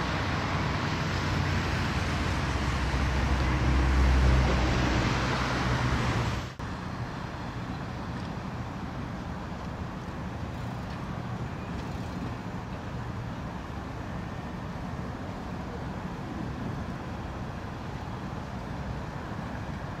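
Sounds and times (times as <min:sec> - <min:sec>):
distant road traffic hum: 0:00.0 - 0:20.0.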